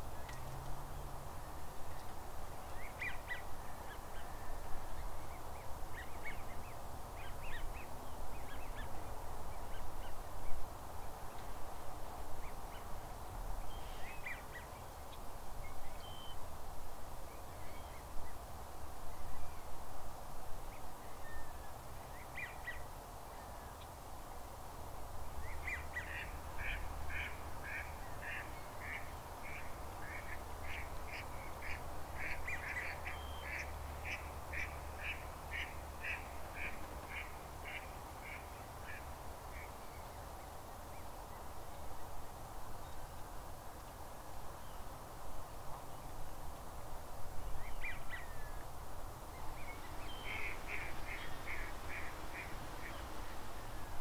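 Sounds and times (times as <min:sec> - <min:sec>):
steady background hiss: 0:00.0 - 0:54.0
ducks and geese calling: 0:25.6 - 0:39.1, 0:50.0 - 0:53.2.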